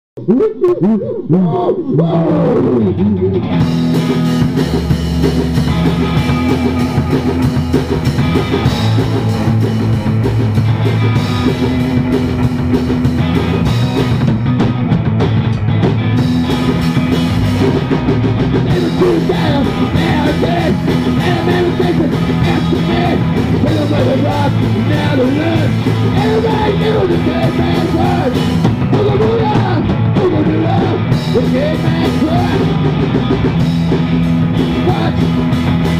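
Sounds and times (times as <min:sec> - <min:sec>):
rock band playing: 0:02.2 - 0:35.9
person singing: 0:18.7 - 0:32.9, 0:34.6 - 0:35.4.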